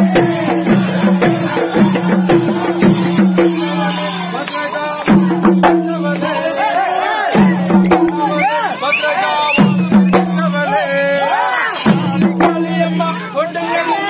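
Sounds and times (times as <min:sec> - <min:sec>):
drums fast sharp strokes: 0:00.0 - 0:04.4
voices singing wavering: 0:00.0 - 0:14.0
jingling rattle: 0:00.1 - 0:14.0.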